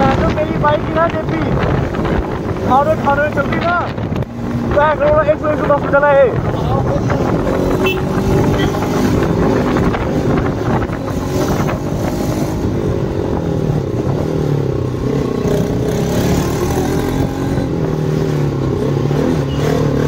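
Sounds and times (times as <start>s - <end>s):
wind buffeting microphone: 0.0s - 15.8s
motorcycle engine running: 6.4s - 19.9s.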